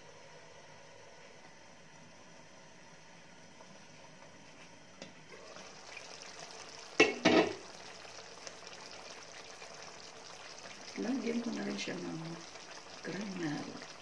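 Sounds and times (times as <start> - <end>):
chicken bubbling and sizzling in pan: 5.2 - 14.0
glass lid clattering: 7.0 - 7.6.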